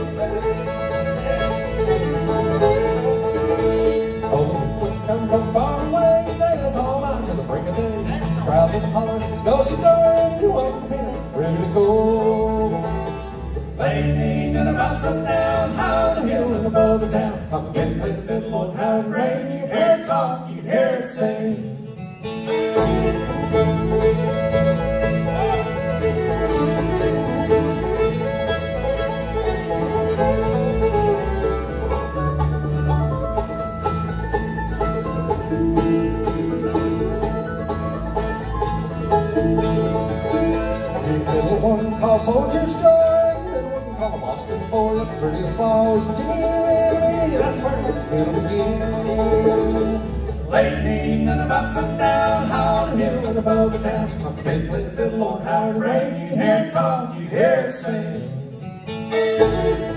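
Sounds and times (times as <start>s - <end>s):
fiddle: 0.0s - 56.8s, 58.0s - 59.9s
acoustic guitar: 0.0s - 59.9s
banjo: 0.0s - 59.9s
mandolin: 0.0s - 59.9s
upright bass: 0.0s - 59.9s.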